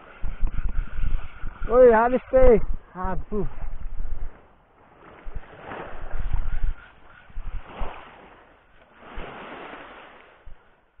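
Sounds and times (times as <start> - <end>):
wind buffeting microphone: 0.0 - 10.7
small waves washing on beach: 7.4 - 11.0.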